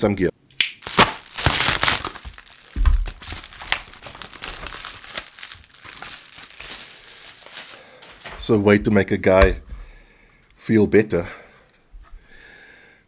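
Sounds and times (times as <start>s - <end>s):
knife tearing plastic mailer: 0.8s - 8.3s
plastic mailer crinkling: 0.8s - 9.5s.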